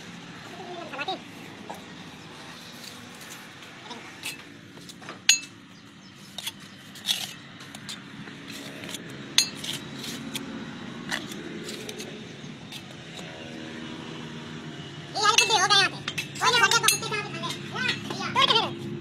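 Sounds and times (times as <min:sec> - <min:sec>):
trowel and bricks clinking: 0:05.3 - 0:05.6, 0:06.4 - 0:10.4
trowel scraping mortar: 0:06.3 - 0:10.5.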